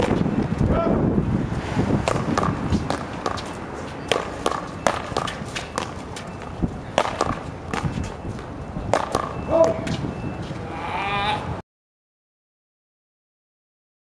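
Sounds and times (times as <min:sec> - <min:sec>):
paddles smacking ball: 0:02.0 - 0:03.5, 0:04.1 - 0:08.0, 0:08.9 - 0:10.0
running footsteps scuffing: 0:02.1 - 0:10.6.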